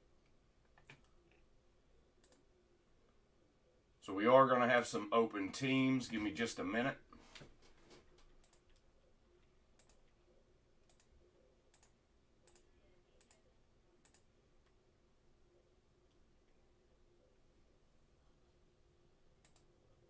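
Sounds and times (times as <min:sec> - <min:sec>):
faint computer clicks: 0:08.1 - 0:08.9, 0:10.8 - 0:14.8, 0:19.4 - 0:19.7.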